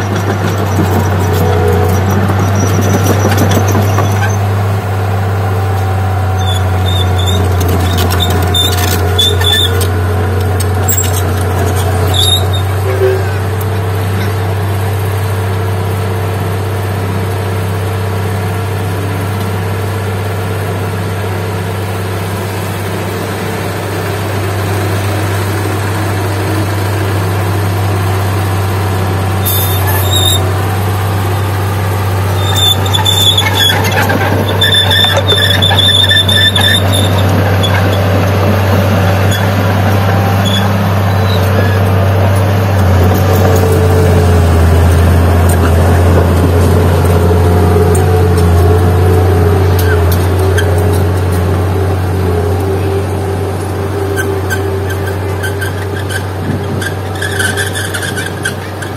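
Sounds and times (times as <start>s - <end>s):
bulldozer diesel engine running: 0.0s - 58.9s
metal squeals from steel tracks: 0.7s - 4.5s, 5.9s - 10.0s, 10.8s - 13.6s, 29.4s - 30.6s, 32.2s - 42.1s, 43.0s - 58.9s.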